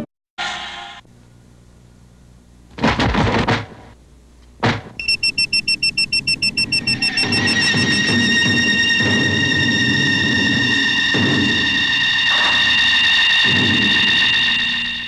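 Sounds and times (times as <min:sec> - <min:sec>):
electronic pulsing tone: 0:05.0 - 0:15.0.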